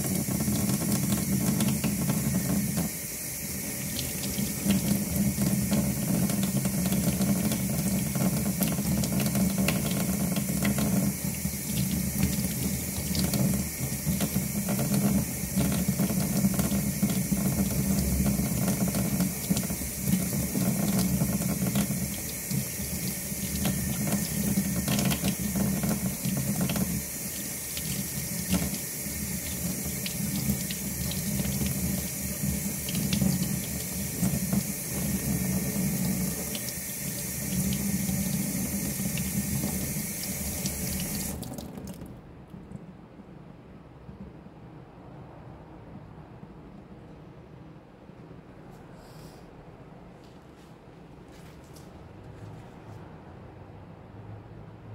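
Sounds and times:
faucet water running into sink: 0.0 - 42.0.

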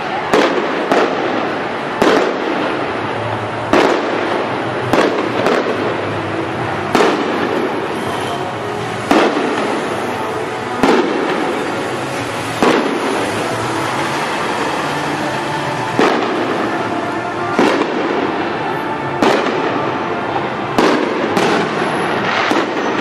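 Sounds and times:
steady background noise: 0.0 - 23.0
firework shells bursting: 6.9 - 19.8.

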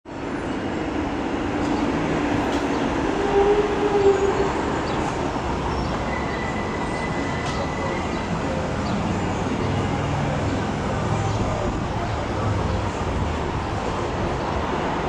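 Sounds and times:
train wheels rumbling on rail: 0.1 - 15.0.

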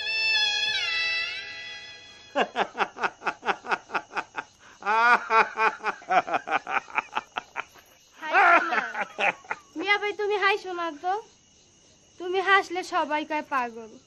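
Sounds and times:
man laughing hard: 2.4 - 9.6.

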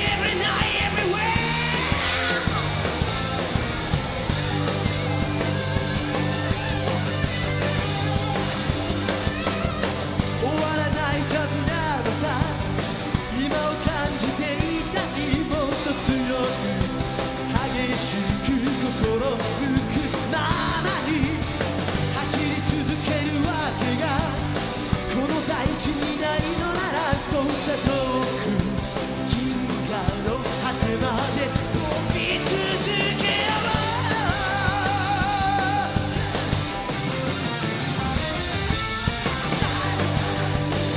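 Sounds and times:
man singing: 0.0 - 2.7, 10.2 - 36.6
live rock band: 0.0 - 40.9.

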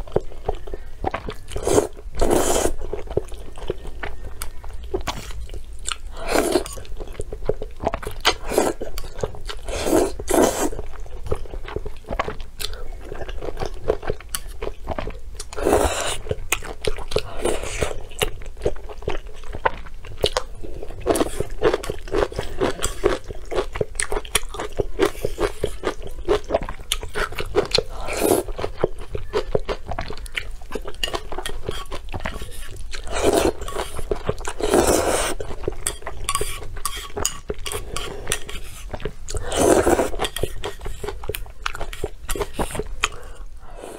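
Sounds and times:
chewing and mouth clicks: 0.0 - 43.4
slurping noodles: 1.6 - 2.9, 6.1 - 6.8, 9.6 - 10.8, 15.6 - 16.3, 27.8 - 28.6, 31.7 - 35.5, 36.3 - 41.2.

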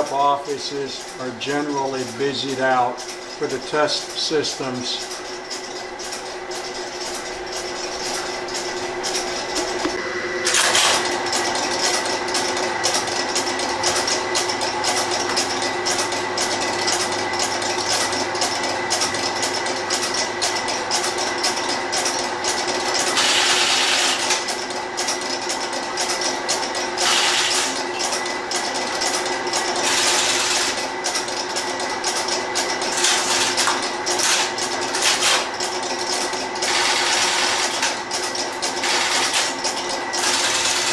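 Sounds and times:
relay contacts clicking rapidly: 0.0 - 9.8
steady hum: 0.0 - 40.9.

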